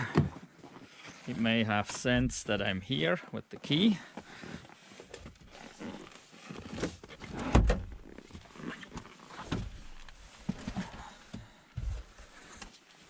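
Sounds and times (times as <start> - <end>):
person climbing into car: 4.4 - 12.8.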